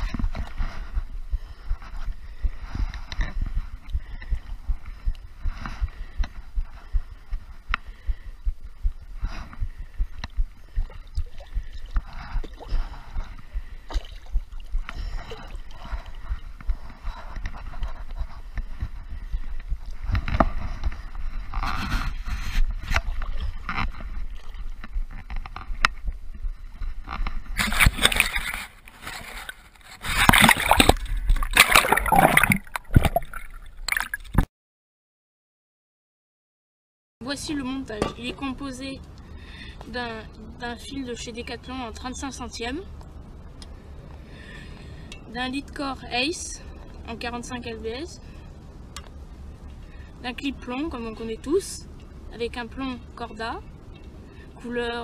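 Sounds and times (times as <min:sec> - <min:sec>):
dull low knocks: 0:00.0 - 0:17.1
water sloshing and gurgling: 0:00.0 - 0:34.5
water rushing and splashing: 0:30.0 - 0:34.4.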